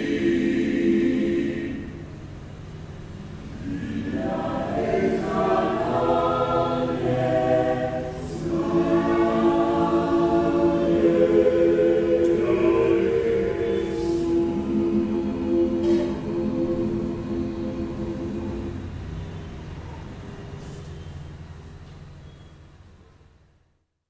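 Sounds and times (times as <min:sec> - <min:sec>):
mixed choir singing in harmony: 0:00.0 - 0:02.5, 0:03.4 - 0:20.2.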